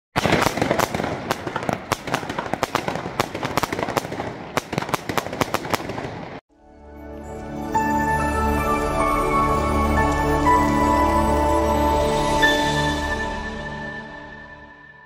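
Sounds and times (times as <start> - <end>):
fireworks bangs and crackles: 0.1 - 6.4.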